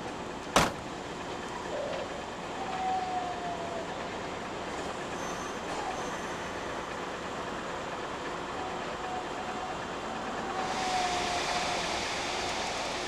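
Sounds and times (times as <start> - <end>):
train noise at platform: 0.0 - 13.0
train door slamming: 0.5 - 0.9
short thin squeal: 5.2 - 6.5.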